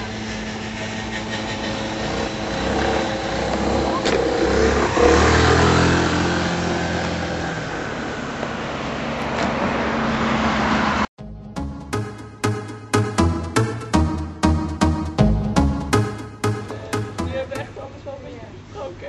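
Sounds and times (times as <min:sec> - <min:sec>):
vehicle engine running: 0:00.0 - 0:07.7.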